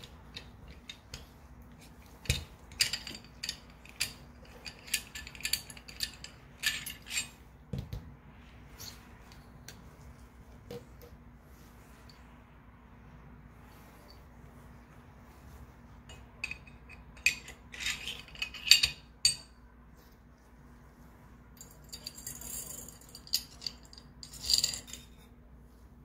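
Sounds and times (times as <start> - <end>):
metal rattling scrape: 0.0 - 7.6, 16.1 - 19.1, 21.6 - 25.3.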